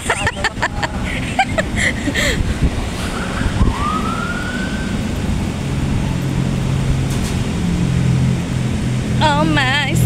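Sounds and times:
steady low rumble: 0.0 - 10.0
rising smooth tone: 2.8 - 9.2.

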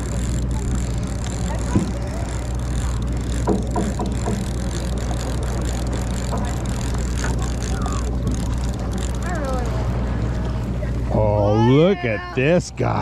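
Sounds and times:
faint voices: 0.0 - 3.5, 6.4 - 13.0
boat engine idling: 0.0 - 13.0.

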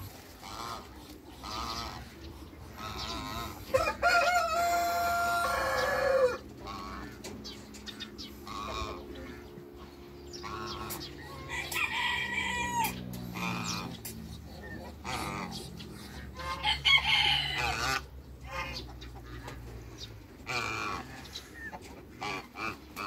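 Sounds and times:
fowl clucking and calling: 0.0 - 23.0
rooster crowing: 3.7 - 6.4, 11.3 - 13.0, 16.5 - 17.8.

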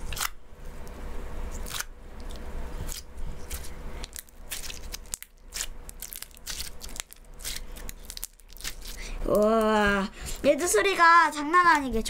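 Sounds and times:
slime popping and crackling: 4.1 - 9.8.

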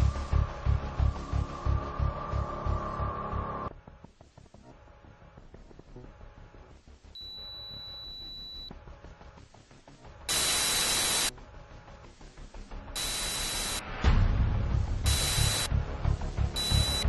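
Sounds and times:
high electronic beep: 7.2 - 8.7, 10.3 - 11.3, 13.0 - 13.8, 15.1 - 15.7, 16.6 - 17.0
static hiss bursts: 10.3 - 11.4, 12.3 - 14.0, 15.1 - 15.7, 16.6 - 17.0.

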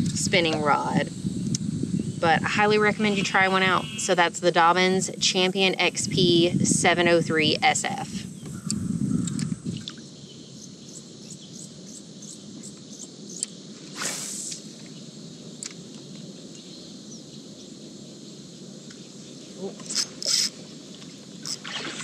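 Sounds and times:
insects droning: 0.0 - 22.0
cricket ticks: 8.3 - 13.7, 14.8 - 21.6.

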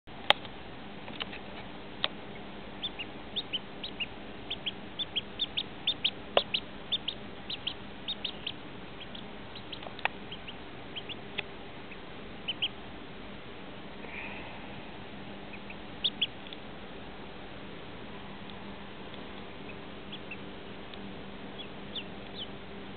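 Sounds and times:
duckling peeping: 1.1 - 12.9, 15.4 - 16.7, 18.1 - 22.6.

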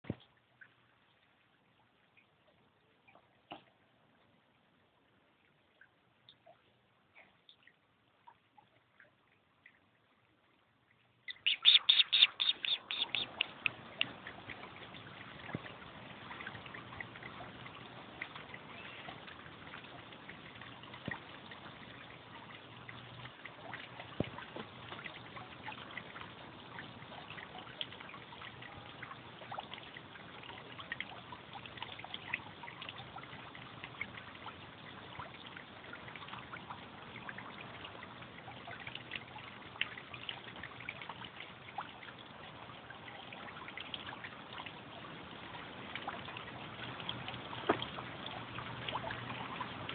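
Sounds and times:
water trickling: 0.0 - 49.9
small faint clicks: 12.1 - 15.7.

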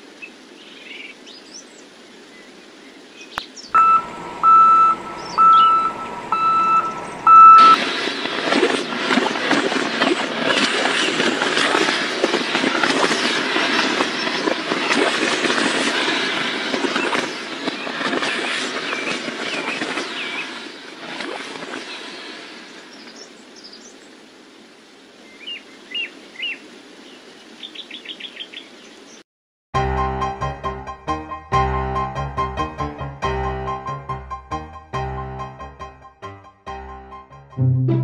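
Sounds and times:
birds chirping: 0.2 - 7.8, 12.7 - 15.0, 25.3 - 29.2
truck engine running: 3.8 - 7.8.

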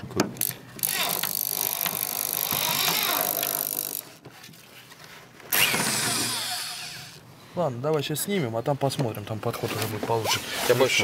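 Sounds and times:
power drill drilling into metal: 5.5 - 7.1.

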